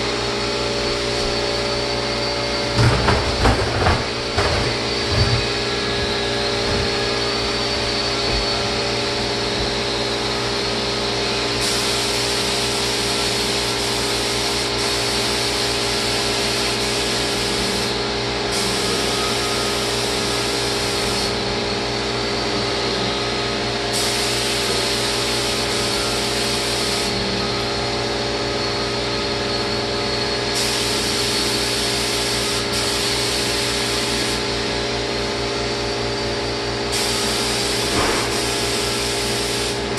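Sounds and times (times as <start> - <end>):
spray equipment humming: 0.0 - 23.0
spray gun hissing: 11.5 - 21.4, 23.9 - 27.1, 30.5 - 34.5, 36.9 - 39.9.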